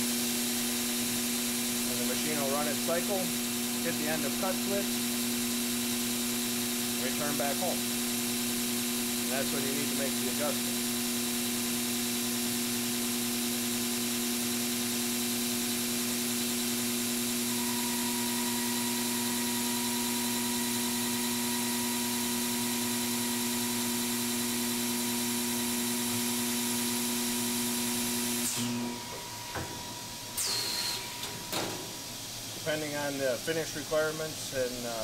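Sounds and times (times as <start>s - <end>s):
lathe motor whine: 0.0s - 31.6s
high machine tone: 17.5s - 19.2s.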